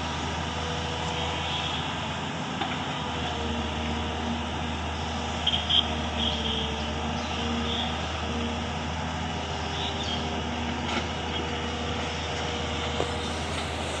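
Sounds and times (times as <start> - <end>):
excavator diesel engine running: 0.0 - 14.0.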